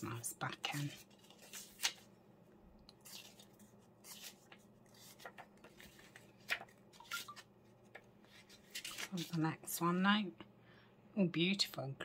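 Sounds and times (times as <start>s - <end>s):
book pages turning: 0.6s - 2.1s, 2.9s - 9.5s.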